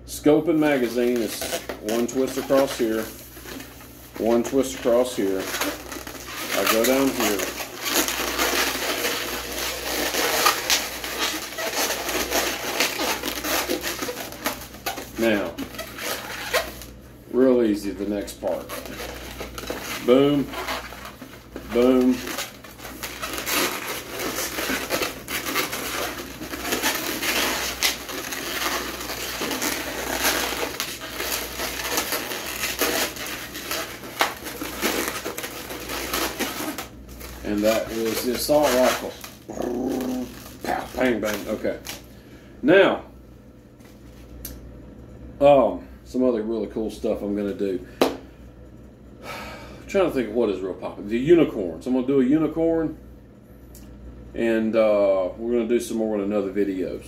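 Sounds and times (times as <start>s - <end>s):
balloons squeaking and rubbing: 0.5s - 42.0s.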